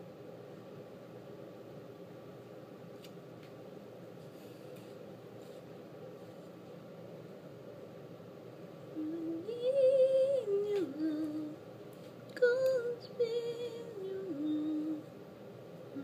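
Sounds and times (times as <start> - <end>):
person humming a slow tune: 8.9 - 11.6, 12.4 - 15.1.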